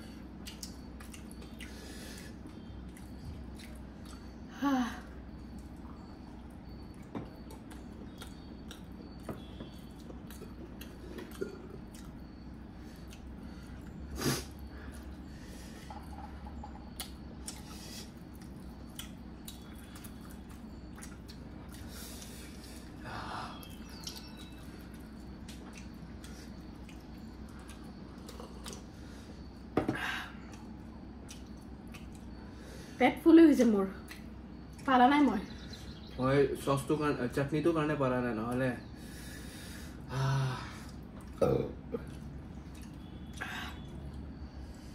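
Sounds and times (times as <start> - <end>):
people chewing food: 0.0 - 33.0, 34.0 - 36.2, 38.5 - 44.9
low steady hum: 0.0 - 44.9.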